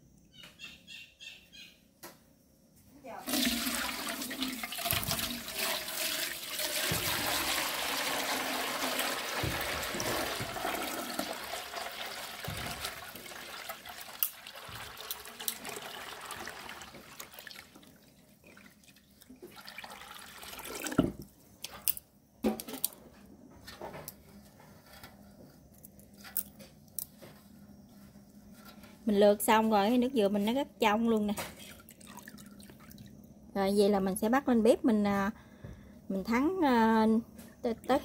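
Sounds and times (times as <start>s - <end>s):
water pouring and splashing: 3.2s - 21.3s, 31.4s - 33.1s.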